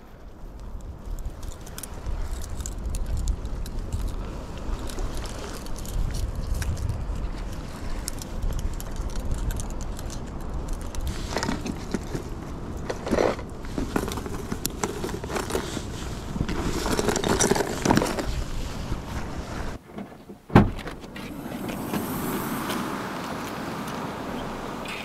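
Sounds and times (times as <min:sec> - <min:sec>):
wind rumble on microphone: 0:00.0 - 0:19.8.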